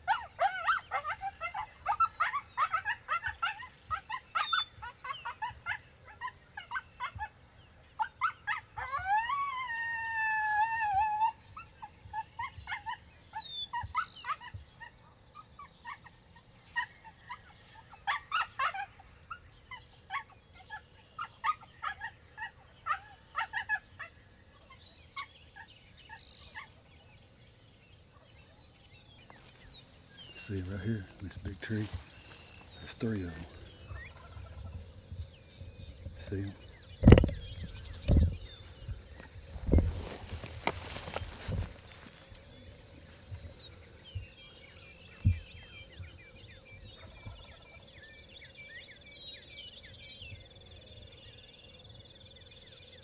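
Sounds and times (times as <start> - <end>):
coyote howling: 0.0 - 7.4, 8.0 - 16.1, 16.7 - 24.2
coyote yips and barks: 0.0 - 7.4, 8.0 - 26.9.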